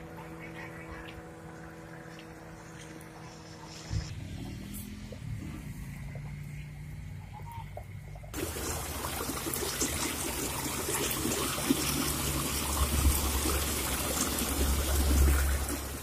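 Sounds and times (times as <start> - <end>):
water splashing over rocks: 8.3 - 16.0.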